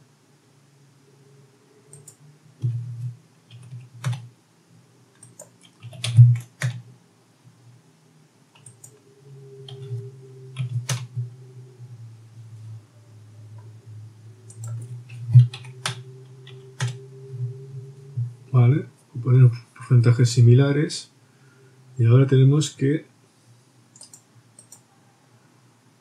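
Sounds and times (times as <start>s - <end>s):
keyboard keys tapping: 2.0s - 4.3s, 5.2s - 6.8s, 9.6s - 11.4s, 14.4s - 17.6s.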